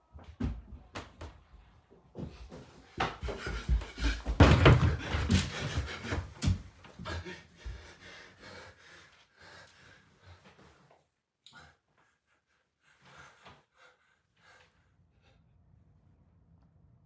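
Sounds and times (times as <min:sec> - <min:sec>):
man breathing hard: 0:03.2 - 0:10.8, 0:11.5 - 0:15.5.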